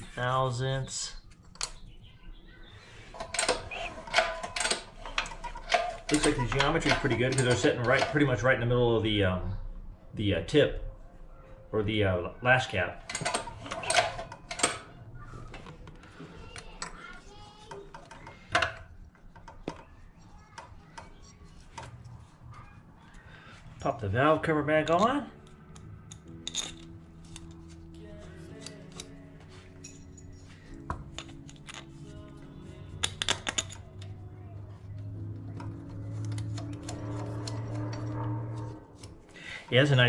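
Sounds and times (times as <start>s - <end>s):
metal clicks and knocks: 3.1s - 8.4s, 13.1s - 14.9s, 29.8s - 32.1s, 33.0s - 34.2s, 35.0s - 39.2s
background music: 3.2s - 9.6s, 13.0s - 15.2s, 23.9s - 40.0s.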